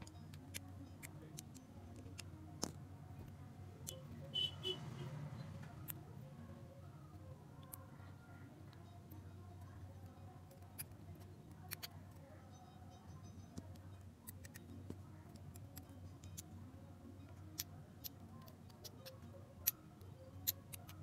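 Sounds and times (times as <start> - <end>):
small metal clicks and ticks: 0.0 - 4.0, 8.6 - 16.6, 17.2 - 21.0.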